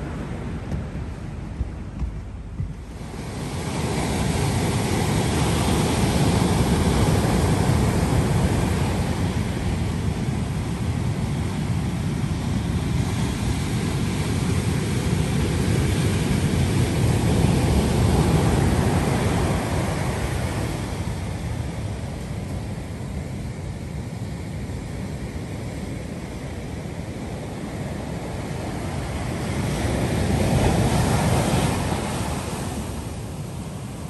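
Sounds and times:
surf breaking on beach: 0:00.0 - 0:10.9.

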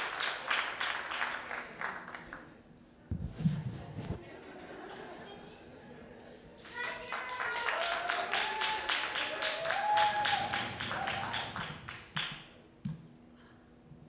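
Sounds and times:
small audience applauding: 0:00.0 - 0:02.5, 0:06.6 - 0:12.7
person cheering: 0:07.0 - 0:11.8.

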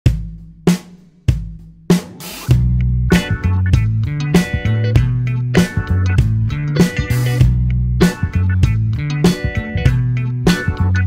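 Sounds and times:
heavy drum hits with ringing tail: 0:00.1 - 0:03.3.

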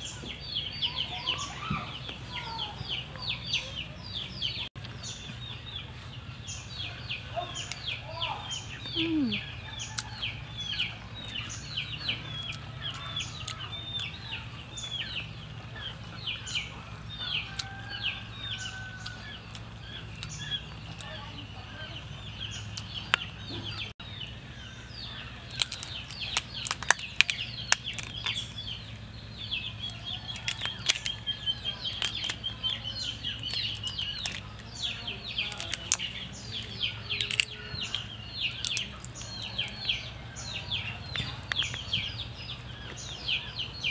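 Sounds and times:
birds chirping: 0:00.0 - 0:43.9
prawn shells cracking: 0:25.4 - 0:28.9, 0:29.8 - 0:39.8.

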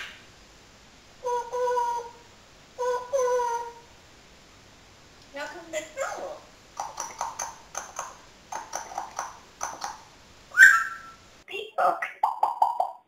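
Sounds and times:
parrot high call: 0:00.0 - 0:00.2, 0:01.2 - 0:03.9, 0:10.5 - 0:11.2
parrot speech-like syllables: 0:05.4 - 0:06.5.

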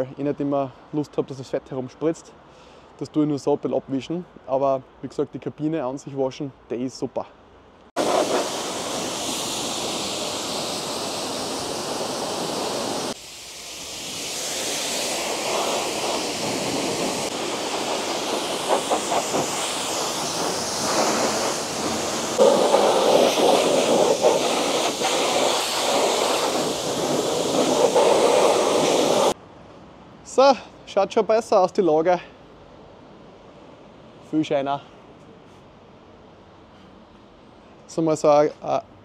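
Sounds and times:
pressure washer water spray: 0:08.0 - 0:29.4.

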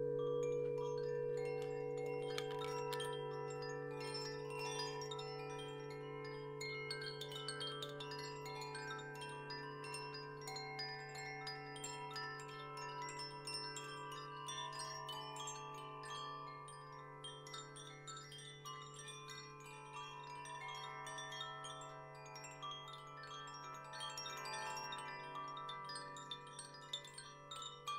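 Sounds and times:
wind chimes tinkling: 0:00.0 - 0:27.9.

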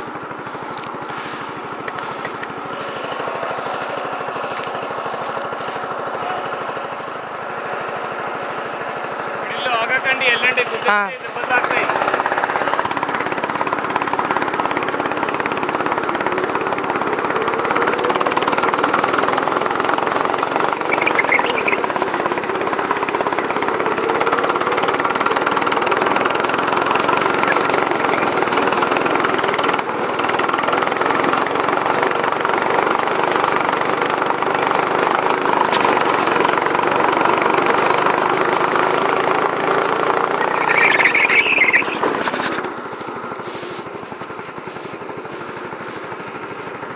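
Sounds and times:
go-kart engine running hard: 0:00.0 - 0:46.9
tyre squeals: 0:40.4 - 0:42.6.

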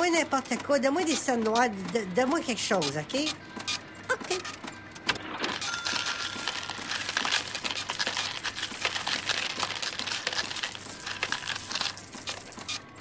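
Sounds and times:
coins clinking and rattling: 0:05.2 - 0:13.0.

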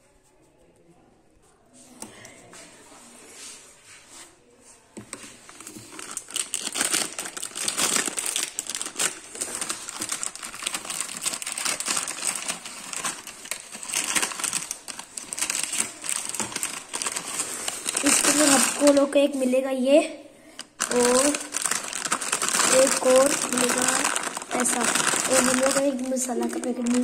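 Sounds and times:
plastic wrapper crinkling: 0:05.4 - 0:19.5, 0:20.5 - 0:27.0.

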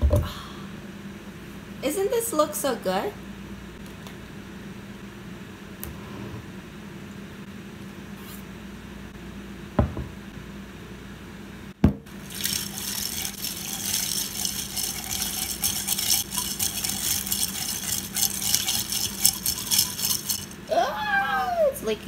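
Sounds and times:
knock: 0:09.8 - 0:10.1
sloshing liquid: 0:12.2 - 0:20.6
ice clinking in glass: 0:12.3 - 0:20.6.

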